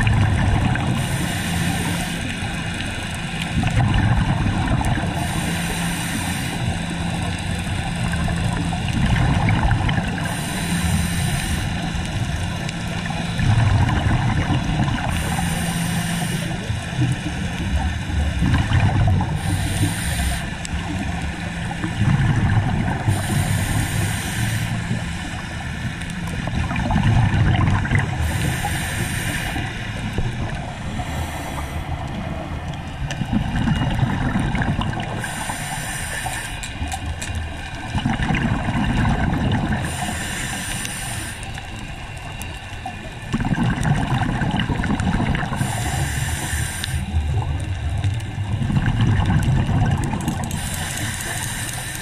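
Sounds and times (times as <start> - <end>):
low bubbling: 0.0 - 5.6, 6.6 - 36.0, 36.6 - 40.2, 41.6 - 52.0
diver breathing through regulator: 0.7 - 2.6, 5.0 - 8.1, 10.1 - 12.5, 15.0 - 17.2, 18.5 - 26.8, 28.0 - 36.8, 39.7 - 41.7, 45.4 - 47.7, 50.3 - 52.0.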